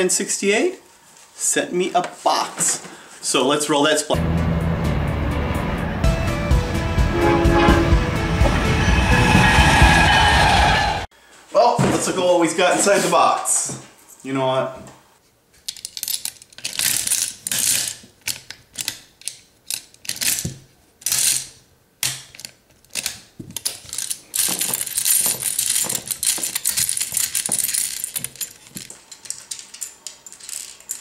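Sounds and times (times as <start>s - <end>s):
gumball machine crank ratcheting: 15.7s - 21.6s, 22.2s - 31.0s.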